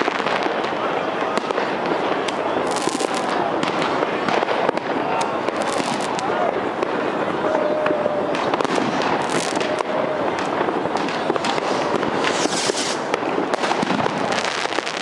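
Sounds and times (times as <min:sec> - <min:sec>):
fireworks cracks and bangs: 0:00.0 - 0:15.0
fireworks hiss: 0:01.7 - 0:06.2, 0:08.0 - 0:15.0.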